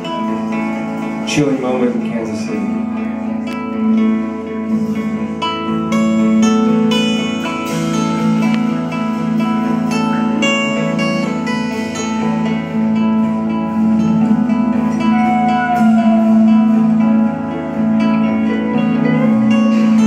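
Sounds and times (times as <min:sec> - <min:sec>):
drums: 0:00.0 - 0:20.0
electric guitars: 0:00.0 - 0:20.0
cello low held notes: 0:13.0 - 0:20.0.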